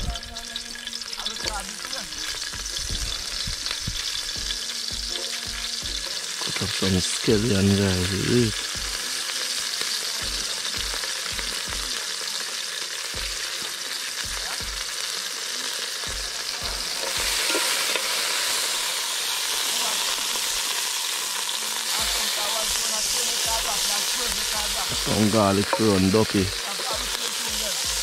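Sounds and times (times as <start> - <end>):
pot sizzling over wood fire: 0.0 - 28.0
soft low thumps: 2.6 - 6.0.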